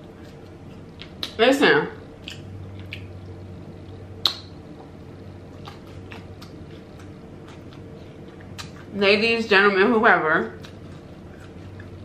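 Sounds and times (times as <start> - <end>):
chewing clicks: 2.2 - 3.1, 5.5 - 8.9
wet mouth smack: 4.2 - 4.5.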